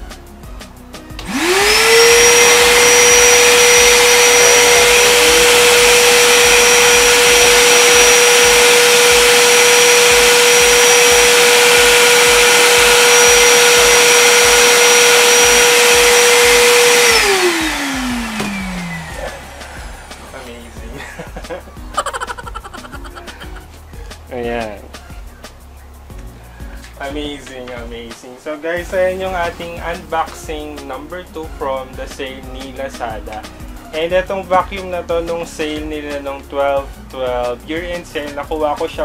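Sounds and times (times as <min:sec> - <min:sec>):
vacuum cleaner motor whine: 0:01.2 - 0:20.8.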